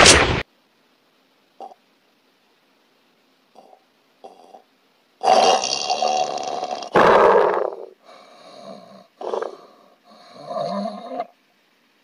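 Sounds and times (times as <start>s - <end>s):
heavy snoring: 5.2s - 11.3s.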